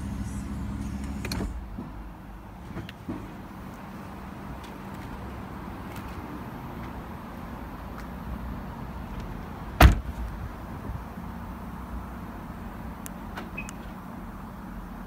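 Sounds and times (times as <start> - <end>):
steady low rumble: 0.0 - 4.6
car door thump: 9.8 - 10.3.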